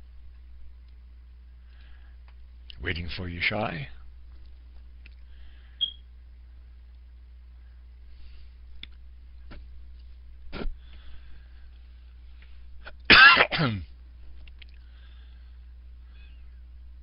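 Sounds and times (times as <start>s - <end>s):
low steady hum: 0.0s - 17.0s
person coughing: 13.1s - 13.9s.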